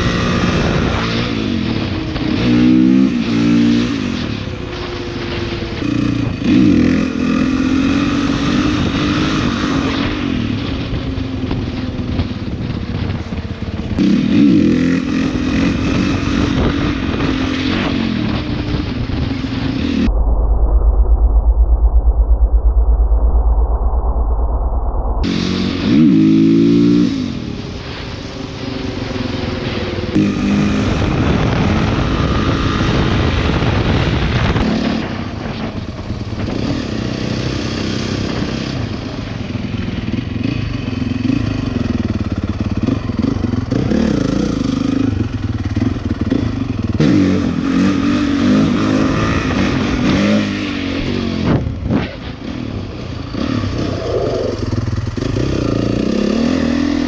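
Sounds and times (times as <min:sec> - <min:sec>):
dirt bike engine revving: 0:29.6 - 0:35.2, 0:53.2 - 0:57.0.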